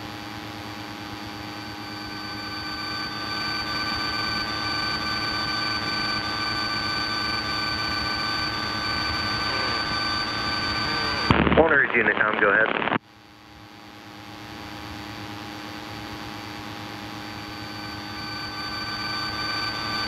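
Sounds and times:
airplane engine cabin drone: 0:00.1 - 0:12.5, 0:14.6 - 0:20.0.

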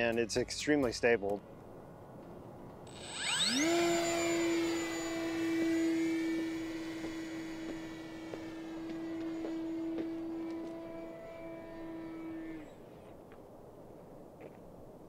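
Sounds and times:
electric propeller high whine: 0:01.4 - 0:13.9.

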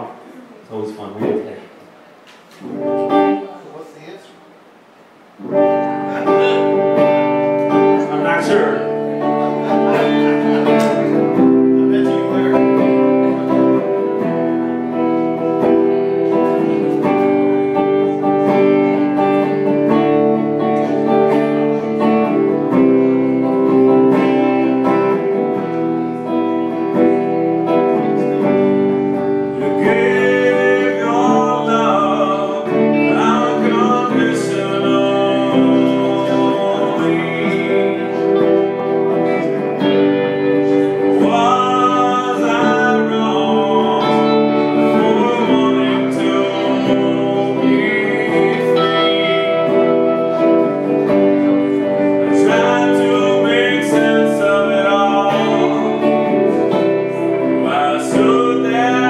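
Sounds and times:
acoustic and electric guitars playing: 0:00.0 - 0:59.0
man singing: 0:05.7 - 0:59.0.

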